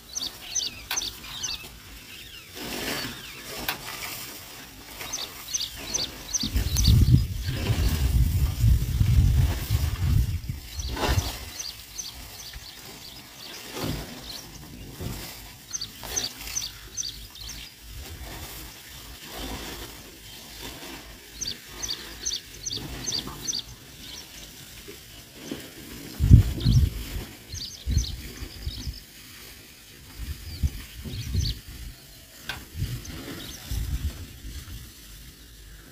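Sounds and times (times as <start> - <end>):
bird chirping: 0.0 - 3.6, 4.9 - 8.2, 10.1 - 17.8, 21.3 - 24.5, 26.2 - 29.1, 30.4 - 33.9
low rumbling thumps: 6.0 - 11.7.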